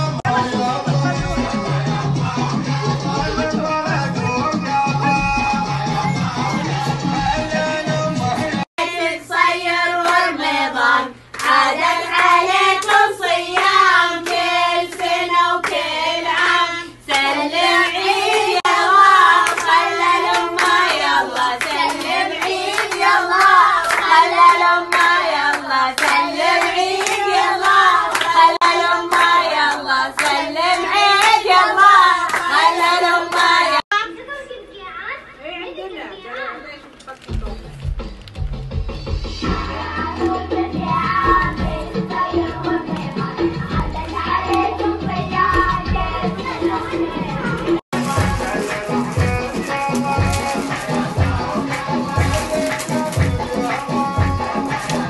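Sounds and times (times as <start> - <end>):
voices singing together: 0.0 - 33.9, 39.2 - 55.0
rhythmic handclaps: 9.7 - 33.8, 37.3 - 55.0.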